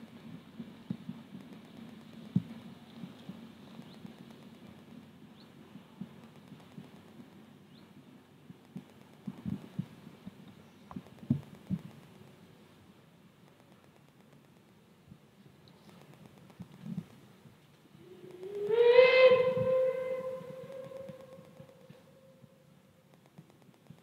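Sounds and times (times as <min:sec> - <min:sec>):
distant train rumble: 0:17.3 - 0:23.0.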